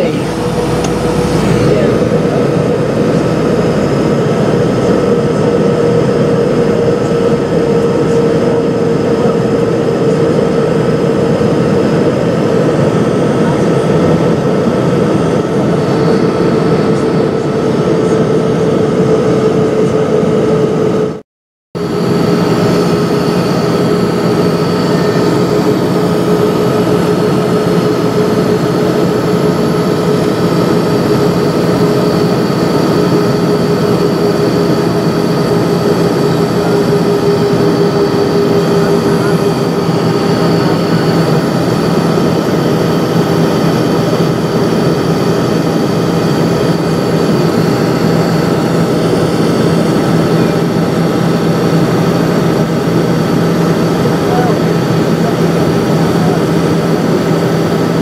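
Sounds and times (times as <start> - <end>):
jet engine cabin drone: 0.0 - 21.2, 21.8 - 58.0.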